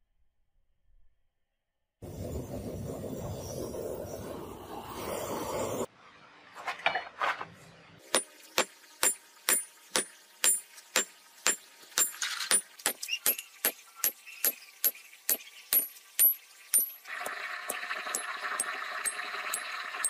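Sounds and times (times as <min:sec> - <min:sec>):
forge fire rushing: 0:02.0 - 0:05.9.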